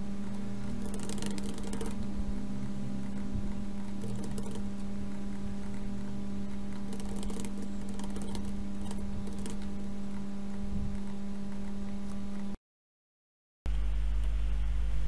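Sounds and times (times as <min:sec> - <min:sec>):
low electrical hum: 0:00.0 - 0:12.6, 0:13.7 - 0:15.0
keyboard and mouse clicking: 0:00.3 - 0:02.1, 0:03.0 - 0:12.5.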